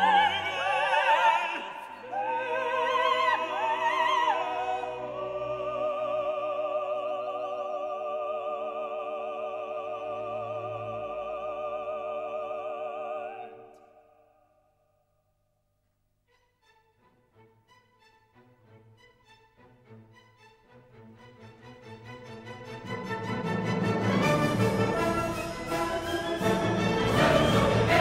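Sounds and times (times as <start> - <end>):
operatic voice singing: 0.0 - 13.8
orchestral accompaniment: 16.3 - 28.0.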